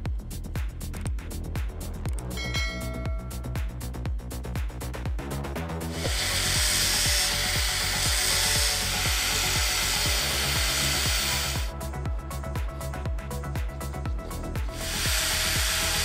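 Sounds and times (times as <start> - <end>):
background music with steady beat: 0.0 - 16.0
angle grinder grinding steel: 5.9 - 11.7, 14.7 - 16.0.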